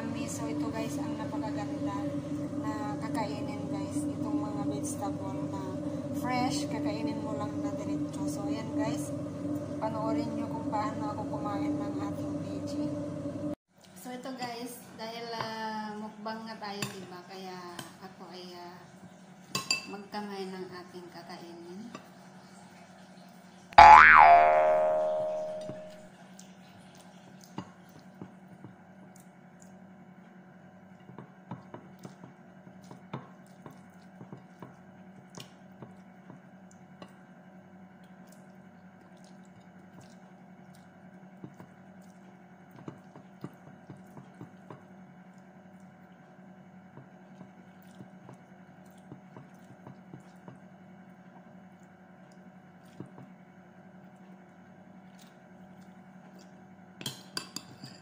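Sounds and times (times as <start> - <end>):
low hum: 23.8 - 26.0
ringing tone: 23.8 - 26.0.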